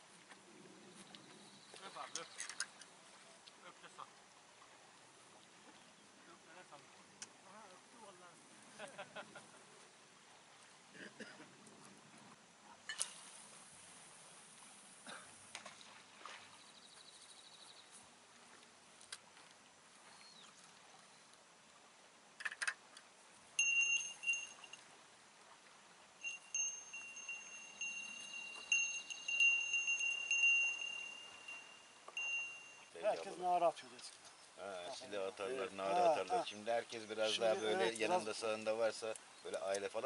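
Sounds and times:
small bell ringing: 0:23.6 - 0:24.8, 0:26.2 - 0:33.0.

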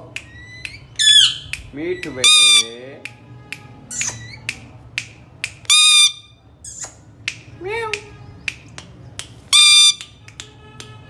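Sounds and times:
regular snapping clicks: 0:00.1 - 0:02.2, 0:03.0 - 0:05.7, 0:06.7 - 0:09.4, 0:10.0 - 0:11.0
parrot whistled call: 0:00.2 - 0:01.6, 0:05.7 - 0:06.9, 0:09.5 - 0:10.0
parrot screeching: 0:00.3 - 0:02.8, 0:05.7 - 0:06.8, 0:09.5 - 0:10.0.

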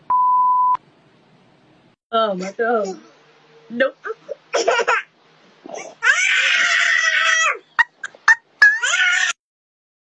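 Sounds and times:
high-pitched vocal cry: 0:05.7 - 0:09.4.

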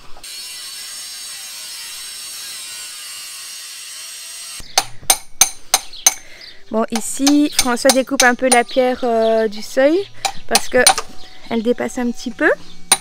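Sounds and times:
angle grinder cutting stone: 0:00.2 - 0:04.6
hammer knocking on chisel: 0:07.0 - 0:08.8.

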